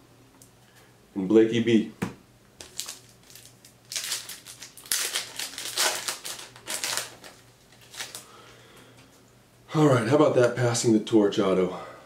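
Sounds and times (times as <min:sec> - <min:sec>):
foil wrapper crinkling: 0:02.6 - 0:08.4.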